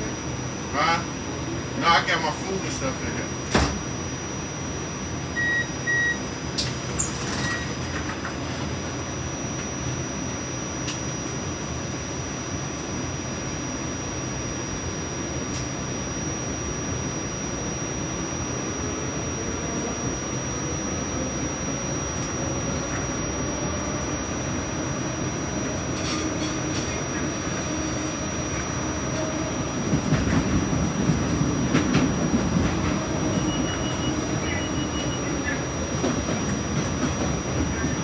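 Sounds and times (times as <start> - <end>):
train rumbling on rails: 0.0 - 13.8, 14.6 - 38.0
rising train whine: 0.0 - 38.0
short electronic beeps: 5.4 - 6.2, 33.3 - 35.7.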